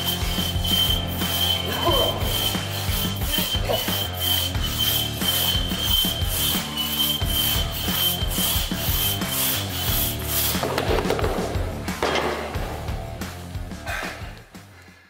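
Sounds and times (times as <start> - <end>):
crosscut saw rasping through log: 0.0 - 10.7.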